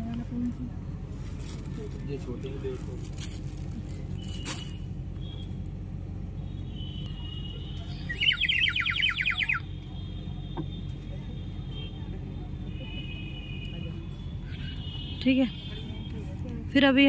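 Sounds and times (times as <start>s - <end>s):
low hum of busy hall: 0.0s - 17.0s
bird-like warbling whistle trill: 8.1s - 9.6s.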